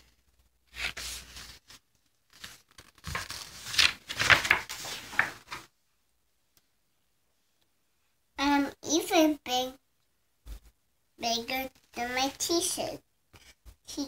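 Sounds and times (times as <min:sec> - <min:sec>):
paper pages rustling: 0:00.0 - 0:05.7.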